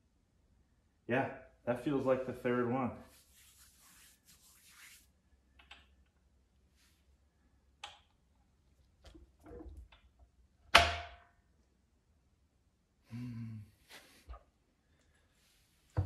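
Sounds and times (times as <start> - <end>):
hands rubbing on steel safe: 3.1 - 5.0.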